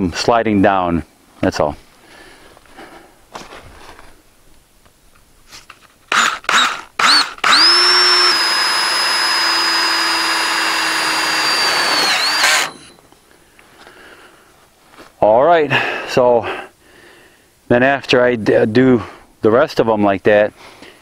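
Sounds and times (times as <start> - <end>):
cordless drill driving a screw: 6.1 - 13.0.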